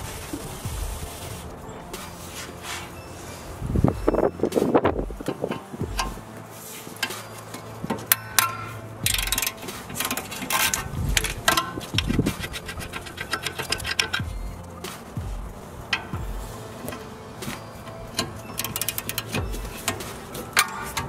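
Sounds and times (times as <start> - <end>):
ratchet wrench clicking: 8.0 - 14.7, 17.8 - 21.0.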